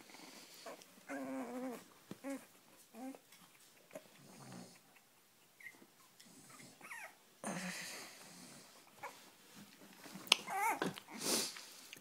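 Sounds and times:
puppies whimpering: 0.3s - 3.2s, 4.0s - 7.2s, 10.4s - 11.2s
rustling: 7.9s - 11.9s.

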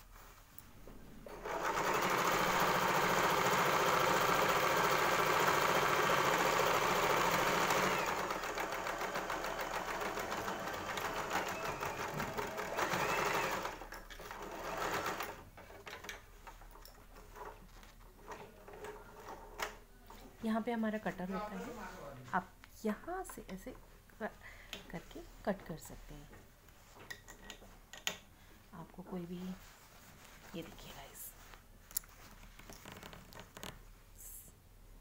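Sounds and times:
sewing machine stitching: 1.3s - 16.2s.

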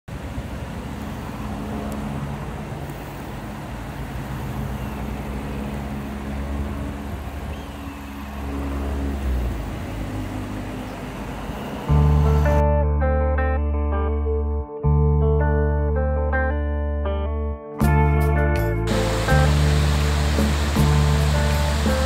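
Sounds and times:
road traffic hum: 0.1s - 12.6s, 18.9s - 22.0s
vehicle passing: 0.4s - 12.6s.

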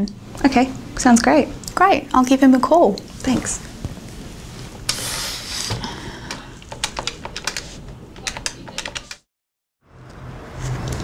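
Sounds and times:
keyboard typing: 6.3s - 9.2s.

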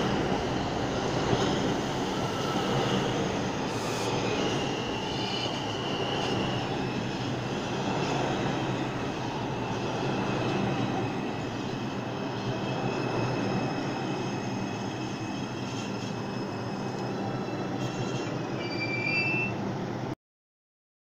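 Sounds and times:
subway train rumbling: 0.0s - 20.2s
brake and wheel squeals: 3.8s - 7.1s, 14.1s - 19.7s.

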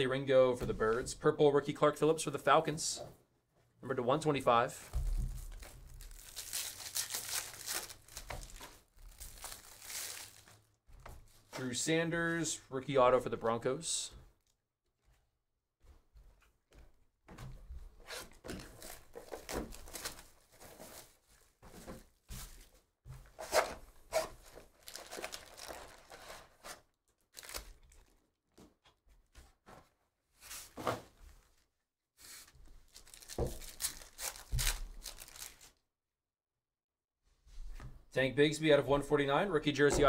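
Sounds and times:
foil packs rustling and tearing: 5.3s - 10.6s, 18.5s - 21.2s, 24.2s - 26.7s, 27.3s - 28.2s, 32.4s - 35.8s.

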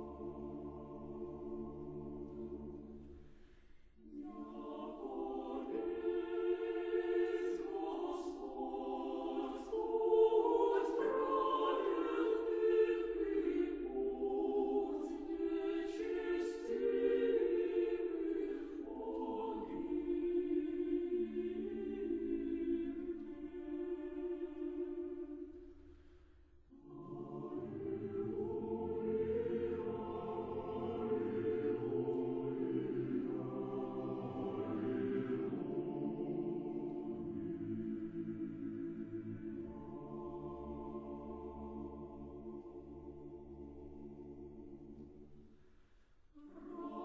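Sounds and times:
choir singing unaccompanied: 0.0s - 3.1s, 4.0s - 25.7s, 26.7s - 45.4s, 46.4s - 47.0s.

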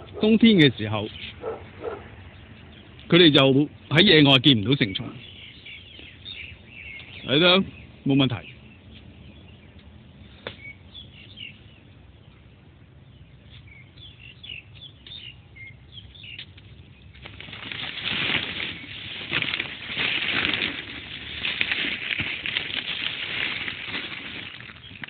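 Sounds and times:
small birds chirping: 0.0s - 25.0s
netting rustling and crackling: 17.2s - 25.0s.

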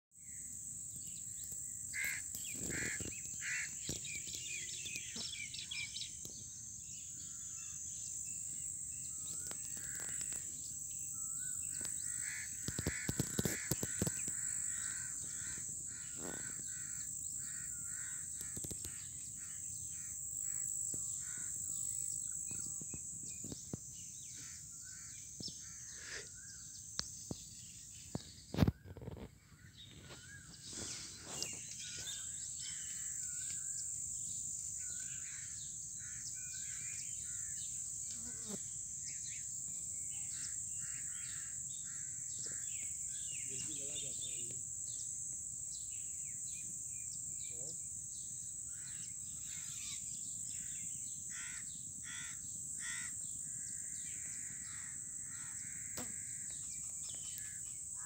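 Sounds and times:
high-pitched insect drone: 0.2s - 28.8s, 30.1s - 58.0s
birds calling: 1.1s - 33.9s, 34.6s - 45.1s, 48.6s - 58.0s
crows cawing: 1.9s - 4.0s, 9.4s - 10.5s, 11.8s - 21.6s, 40.4s - 42.8s, 51.3s - 53.2s, 53.8s - 56.5s.

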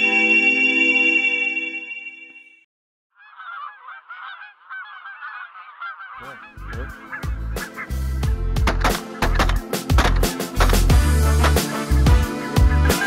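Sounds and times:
geese honking in flight: 3.2s - 8.2s, 11.2s - 13.0s
music with a strong beat: 6.7s - 13.0s.

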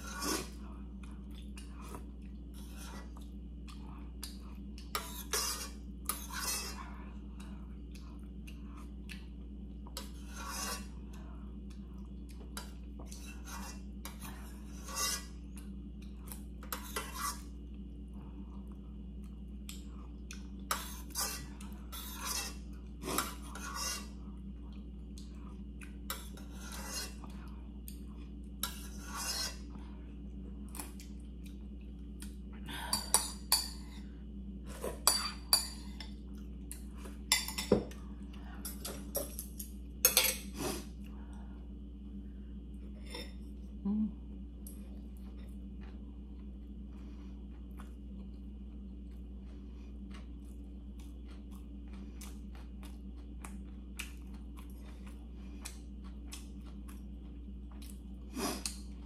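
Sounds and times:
steady low hum: 0.0s - 59.0s
metal spoon scraping a pot: 4.9s - 6.8s, 10.2s - 10.9s, 13.2s - 15.3s, 16.7s - 17.4s, 20.7s - 24.1s, 26.4s - 27.2s, 28.6s - 29.6s.

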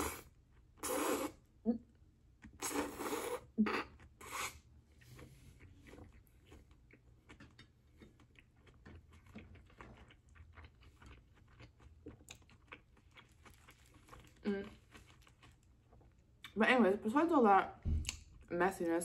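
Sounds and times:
close chewing: 5.0s - 16.5s.

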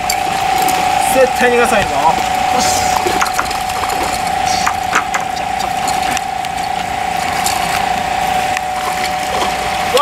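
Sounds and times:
fishing reel buzzing: 0.0s - 10.0s.

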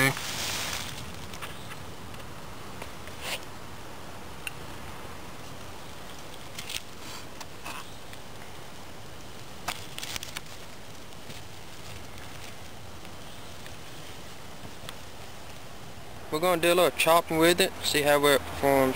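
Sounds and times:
small flame hissing and crackling: 0.0s - 3.6s, 5.4s - 16.2s.

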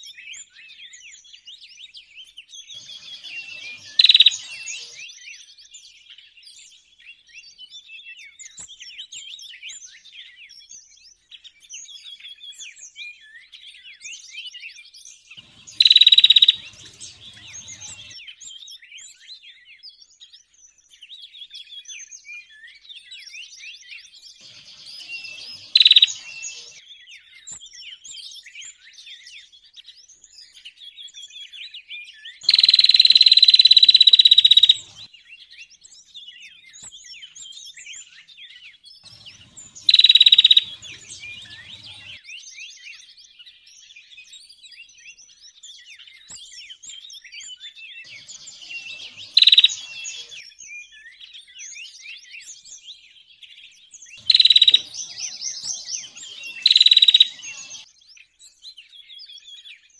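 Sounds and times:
songbirds chirping chorus: 1.8s - 5.4s, 15.3s - 18.4s, 24.3s - 26.9s, 32.4s - 36.2s, 39.0s - 42.4s, 48.0s - 50.7s, 52.6s - 58.4s
loud steady bird calls: 2.6s - 5.3s, 15.4s - 18.2s, 24.4s - 26.8s, 32.4s - 35.2s, 39.0s - 42.4s, 48.0s - 50.6s, 54.1s - 58.0s.

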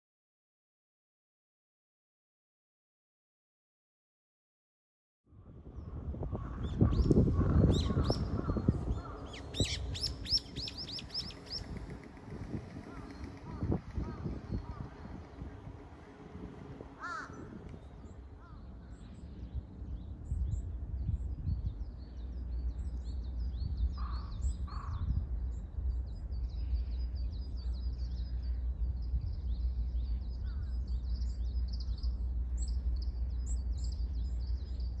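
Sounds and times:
wind rumble on microphone: 5.3s - 35.0s
small birds chirping: 5.8s - 35.0s
lower bird calls: 6.3s - 19.7s.

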